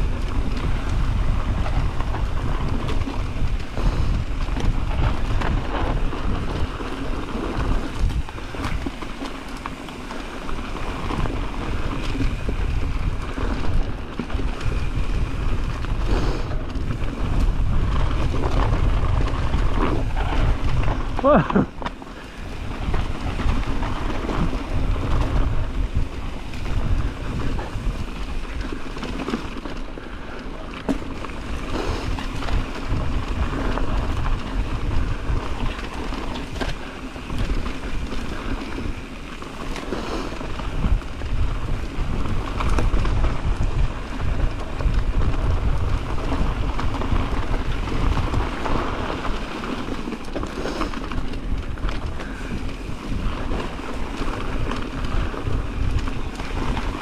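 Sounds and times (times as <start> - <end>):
bike tyres rumbling on dirt: 0.0 - 57.0
wind buffeting microphone: 0.0 - 57.0.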